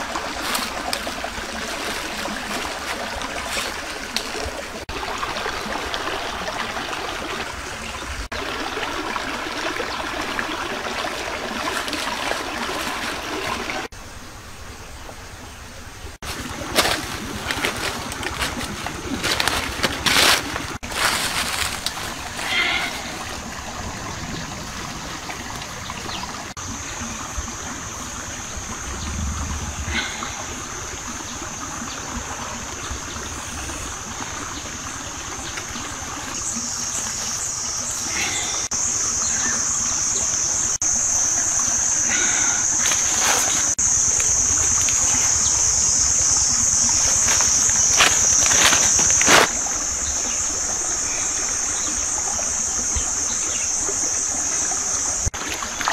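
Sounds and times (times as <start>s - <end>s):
rustling of plants: 0.0s - 4.8s, 16.2s - 23.6s, 42.1s - 49.5s
stream water running: 0.0s - 55.9s
high-pitched insect drone: 32.6s - 55.3s.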